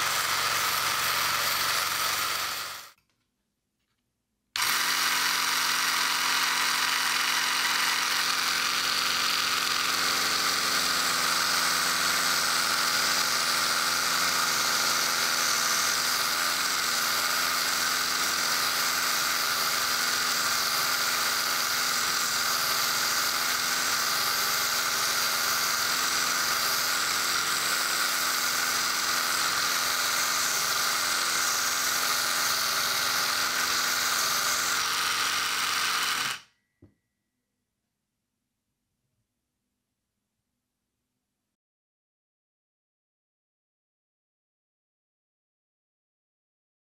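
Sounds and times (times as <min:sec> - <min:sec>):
sanding belt sanding wood: 0:00.0 - 0:02.9, 0:14.4 - 0:36.2
belt sander motor whine: 0:04.6 - 0:36.4.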